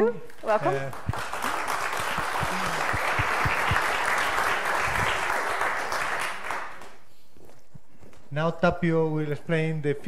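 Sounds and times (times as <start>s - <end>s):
audience applauding: 0.3s - 7.1s.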